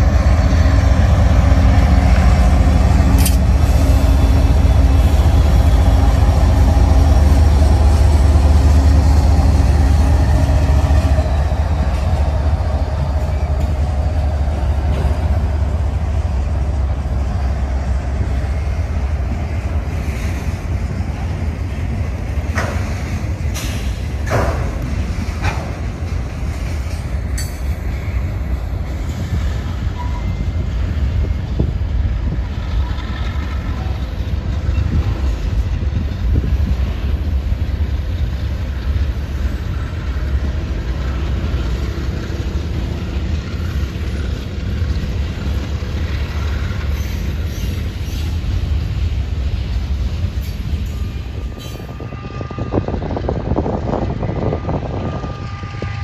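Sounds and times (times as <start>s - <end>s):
train wheels rumbling on rail: 0.0s - 56.0s
wheel squeals: 29.9s - 30.6s.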